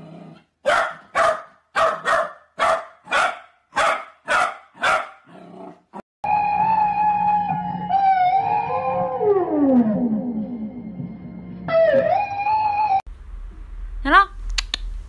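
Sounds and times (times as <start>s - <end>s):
puppy barking: 0.6s - 5.3s.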